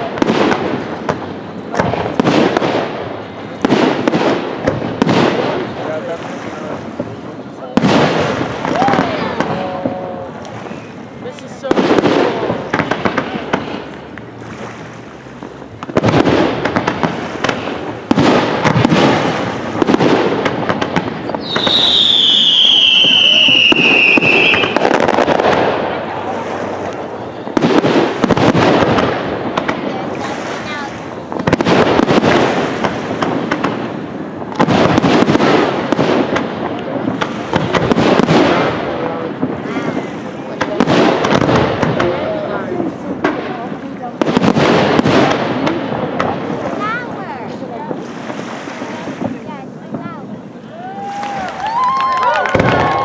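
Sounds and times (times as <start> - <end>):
fireworks crackling and hissing: 0.0 - 53.0
heavy firework reports: 0.0 - 53.0
firework whistle falling in pitch: 21.4 - 24.8.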